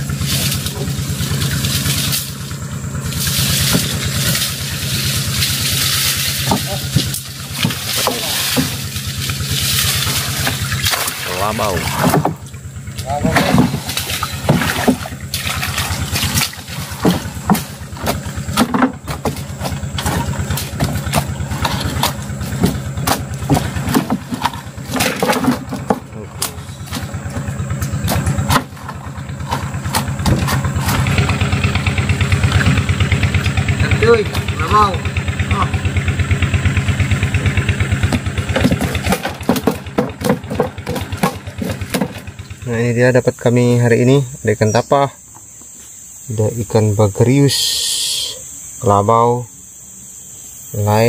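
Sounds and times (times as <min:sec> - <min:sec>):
knocks and clatter: 0:00.0 - 0:35.2, 0:37.2 - 0:42.6
small boat engine idling: 0:00.0 - 0:51.0.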